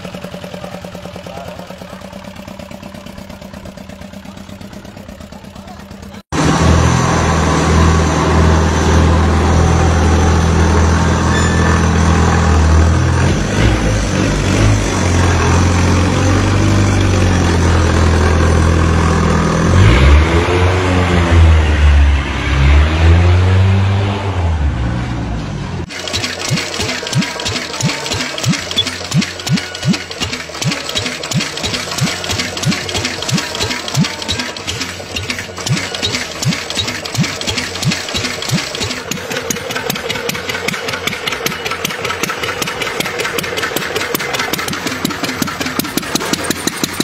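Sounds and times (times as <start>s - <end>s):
engine with rapid ticking beat: 0.0s - 7.3s, 25.9s - 47.0s
motorcycle engine running: 0.0s - 21.4s, 25.8s - 47.0s
motorcycle engine revving: 0.0s - 47.0s.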